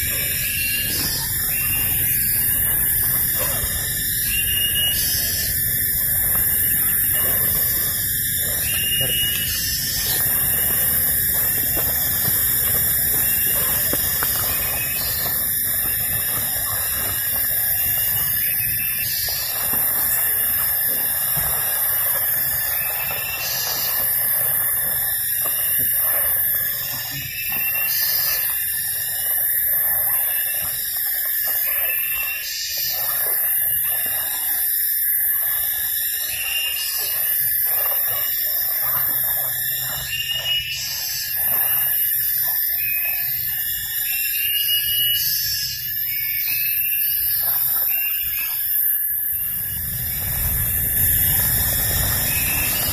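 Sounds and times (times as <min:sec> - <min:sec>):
insect chorus drone: 0:00.0 - 0:52.9.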